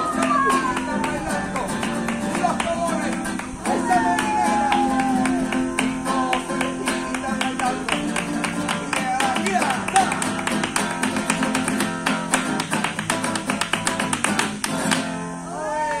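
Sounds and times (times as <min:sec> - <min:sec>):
person singing: 0:00.0 - 0:10.5
hand claps: 0:00.0 - 0:15.2
acoustic flamenco guitar: 0:00.0 - 0:15.5.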